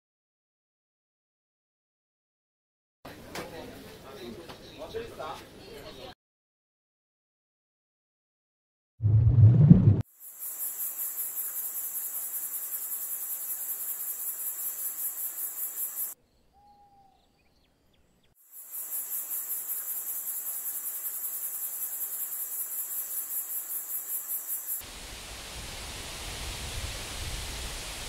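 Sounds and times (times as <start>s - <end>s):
cricket chirping: 10.1s - 16.2s, 17.8s - 24.8s
steady hiss: 18.6s - 28.0s.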